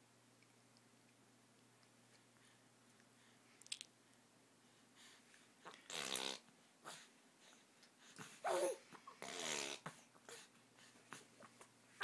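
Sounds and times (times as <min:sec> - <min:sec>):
baby cooing and grunting: 0:08.4 - 0:10.5.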